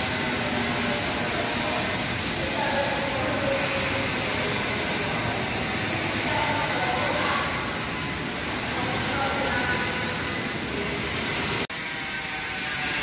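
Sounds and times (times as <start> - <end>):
steady background noise: 0.0 - 13.0.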